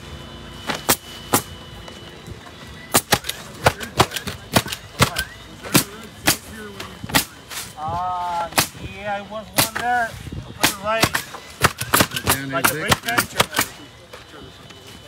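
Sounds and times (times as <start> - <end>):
nail gun cracks: 11.0 - 13.7.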